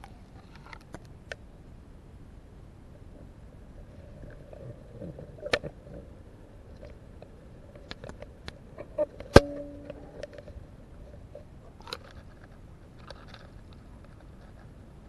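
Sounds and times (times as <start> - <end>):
ringing knock hum: 8.8 - 10.5.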